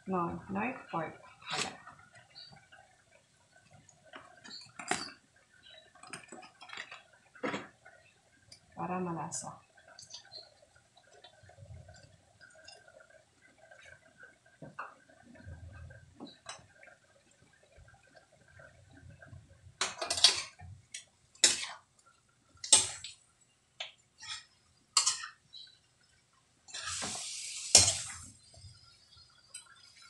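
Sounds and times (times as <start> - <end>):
metal ladle scraping wok: 26.7 - 28.3.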